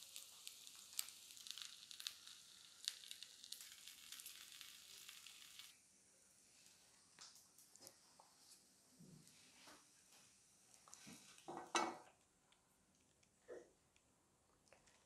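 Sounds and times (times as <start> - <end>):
fat crackling and popping: 0.0 - 5.8
meat sizzling in a pan: 0.0 - 5.8.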